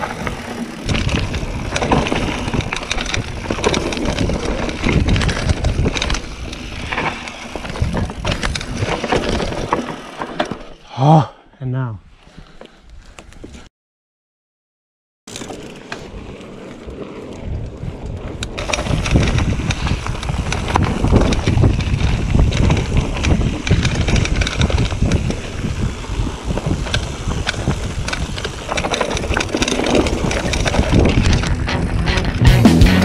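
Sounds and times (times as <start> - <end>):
bike knocks and rattles: 0.0 - 10.8, 18.1 - 32.3
tyres rolling over dirt and stones: 0.0 - 10.9, 15.3 - 32.0
wind buffeting microphone: 0.8 - 7.0, 16.9 - 32.0.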